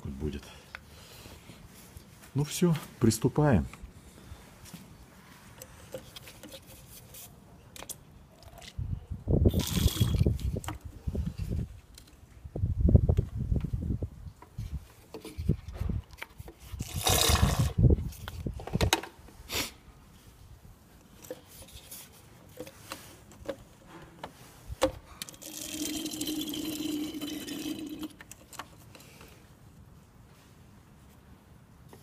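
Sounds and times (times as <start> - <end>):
liquid squirting and gurgling: 9.5 - 10.5, 16.7 - 17.8, 25.3 - 28.2
syringe and hose clicks: 9.5 - 12.2, 24.8 - 29.4
handling noises: 20.9 - 25.6.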